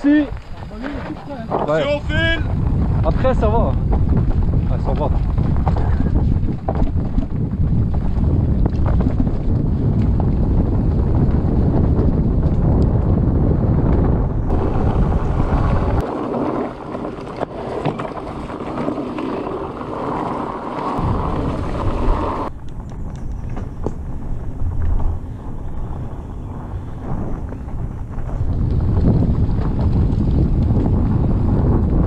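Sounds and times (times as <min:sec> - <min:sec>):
mountain bike rolling on dirt: 0:00.0 - 0:32.0
wind buffeting microphone: 0:00.0 - 0:32.0
bike clicks and knocks: 0:22.5 - 0:25.3.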